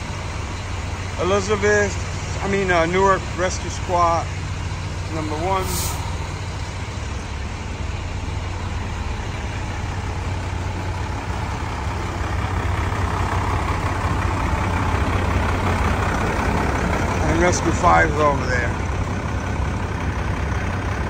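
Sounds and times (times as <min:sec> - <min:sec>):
fire engines idling: 0:00.0 - 0:21.0
broad rushing noise: 0:04.2 - 0:08.9.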